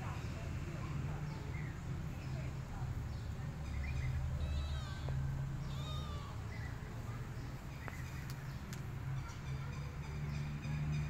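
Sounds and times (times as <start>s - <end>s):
kitten meowing: 5.7s - 6.4s.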